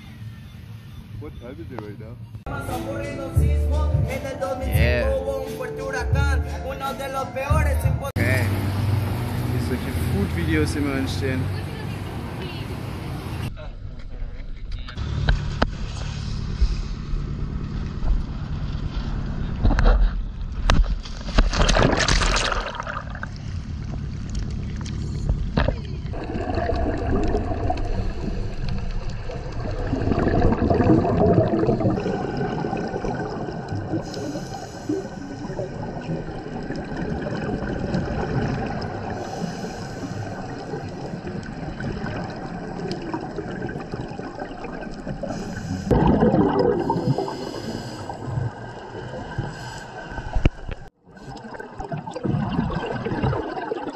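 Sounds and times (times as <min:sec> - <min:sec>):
underwater regulator breathing bubbles: 0:26.1 - 0:53.9.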